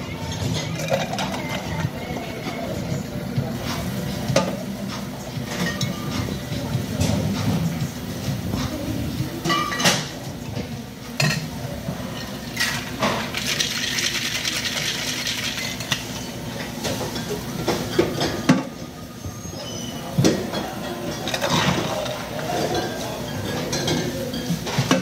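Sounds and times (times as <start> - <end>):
ice rattling in cocktail shaker: 12.4 - 16.4.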